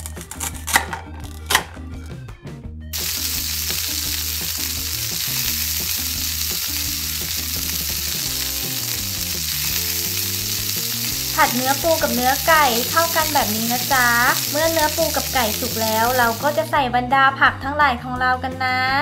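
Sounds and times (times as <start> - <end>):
soft background music: 0.0 - 19.0
frying sizzle: 2.9 - 16.7.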